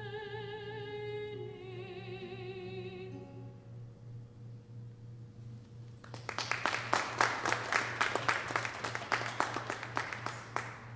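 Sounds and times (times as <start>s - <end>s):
audience applauding: 6.0s - 10.9s.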